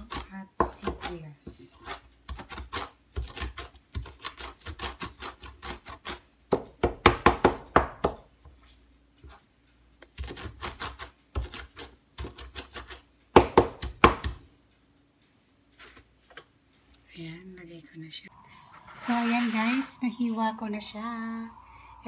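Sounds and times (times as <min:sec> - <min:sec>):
knife chopping on cutting board: 0:00.1 - 0:08.2.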